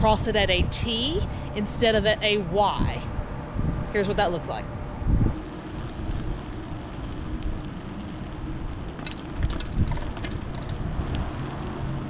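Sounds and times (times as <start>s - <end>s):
wind noise: 0.0s - 12.0s
bicycle rolling over wet pavement: 5.3s - 12.0s
sharp clicks and rattles: 8.7s - 11.3s
wheels bumping over rails: 8.9s - 11.1s.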